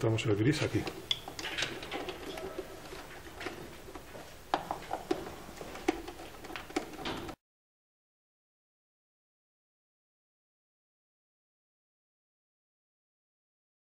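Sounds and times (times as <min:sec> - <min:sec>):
wire clicking against terminal blocks: 0:00.6 - 0:07.4.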